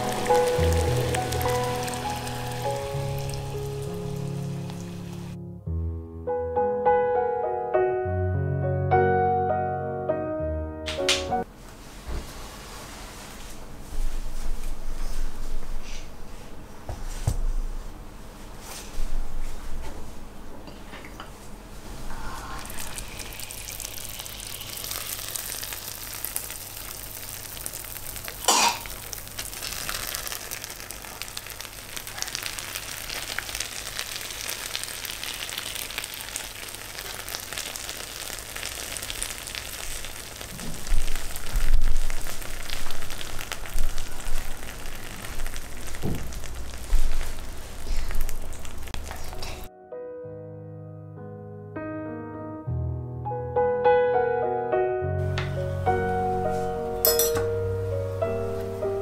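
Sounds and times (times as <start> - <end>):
pastry sizzling and crackling: 0.0 - 5.4, 22.6 - 49.7.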